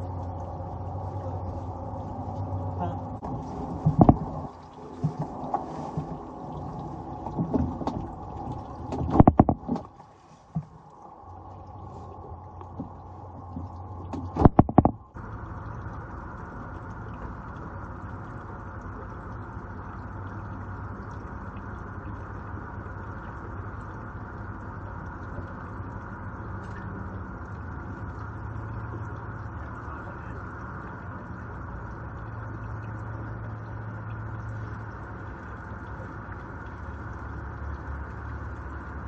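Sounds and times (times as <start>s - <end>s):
rain hissing: 0.0s - 7.4s.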